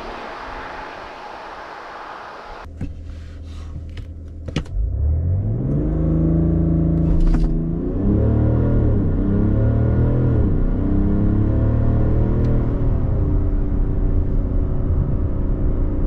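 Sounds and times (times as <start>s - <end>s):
road and wind noise: 0.0s - 16.0s
diesel engine revving: 4.8s - 13.3s.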